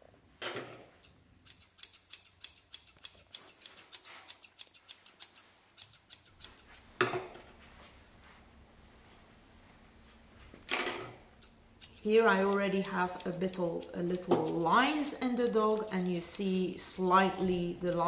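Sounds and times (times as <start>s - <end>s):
scissors snipping hair: 1.0s - 6.8s, 11.4s - 16.6s, 17.2s - 18.0s.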